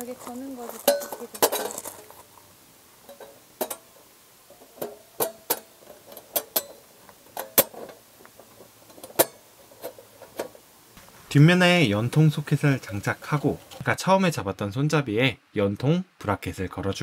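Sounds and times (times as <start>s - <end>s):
metal panels clicking and clinking: 0.6s - 2.2s, 3.1s - 10.6s.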